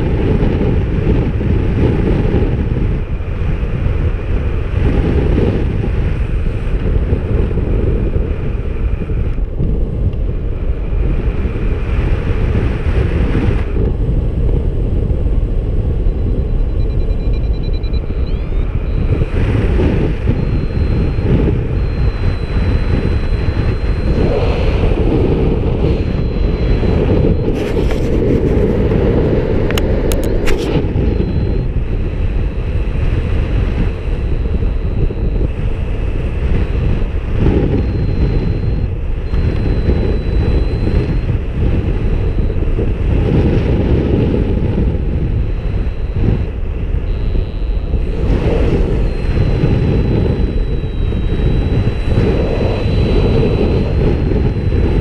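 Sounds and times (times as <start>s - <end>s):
wind rushing over microphone: 0.0s - 55.0s
faint thin high tone: 20.2s - 28.1s.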